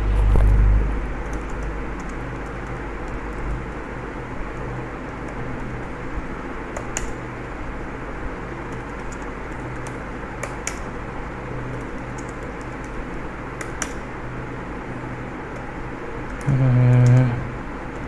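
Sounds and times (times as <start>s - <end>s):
background hum and hiss: 0.0s - 18.0s.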